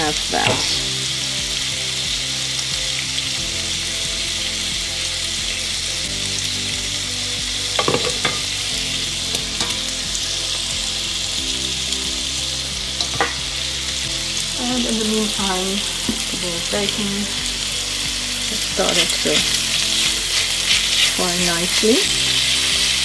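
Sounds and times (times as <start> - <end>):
bacon sizzling in a frying pan: 0.0 - 23.0
utensil knocking against pot: 7.8 - 8.4.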